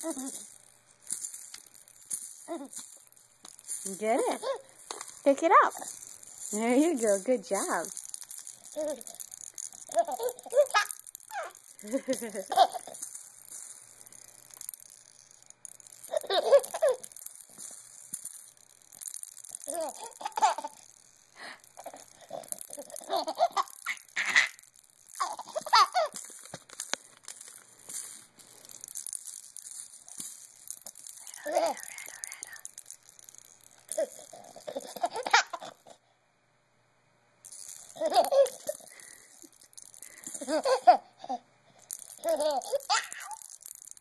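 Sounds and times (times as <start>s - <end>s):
baby laughing and giggling: 0.0s - 0.5s, 2.5s - 2.8s, 4.2s - 4.7s, 9.9s - 13.0s, 16.1s - 17.0s, 19.7s - 20.8s, 21.8s - 24.6s, 25.2s - 26.2s, 34.0s - 35.9s, 38.0s - 38.9s, 40.3s - 41.4s, 42.2s - 43.4s
baby rattle shaken: 0.0s - 36.0s, 37.4s - 44.0s.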